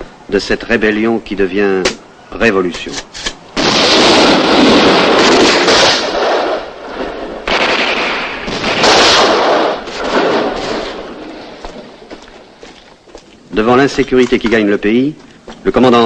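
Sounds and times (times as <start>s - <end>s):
rapid gunfire: 3.6s - 6.6s, 7.5s - 11.0s.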